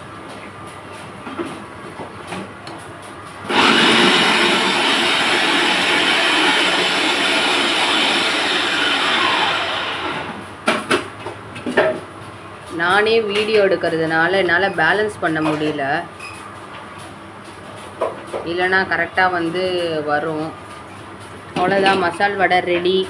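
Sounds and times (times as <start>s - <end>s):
oil sizzling: 3.5s - 10.6s.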